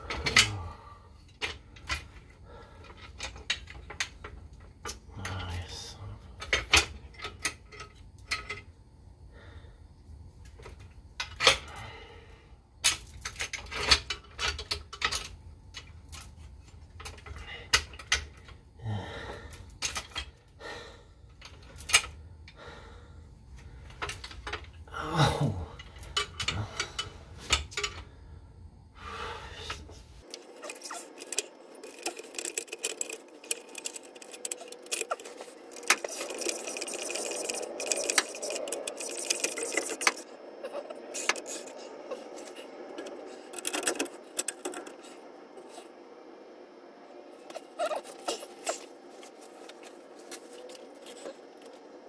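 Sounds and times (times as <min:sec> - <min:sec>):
metal tools clinking: 0:00.0 - 0:08.7, 0:25.7 - 0:28.1, 0:30.2 - 0:45.8
steady hiss with faint hum: 0:00.0 - 0:52.0.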